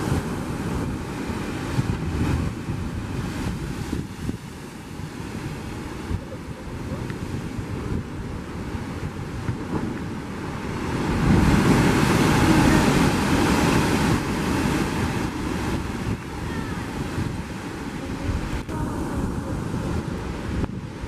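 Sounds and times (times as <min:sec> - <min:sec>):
ocean surf crashing into rocks: 0:00.0 - 0:21.0.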